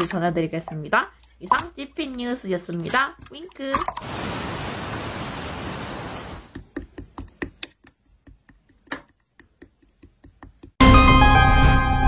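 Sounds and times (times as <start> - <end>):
static hiss: 4.0 - 6.5.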